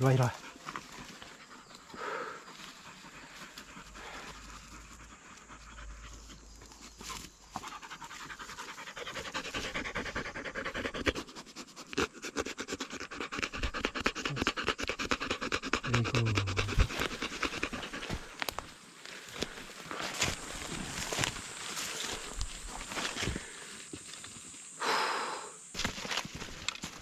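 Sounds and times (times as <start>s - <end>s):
dog panting: 0.2s - 18.7s.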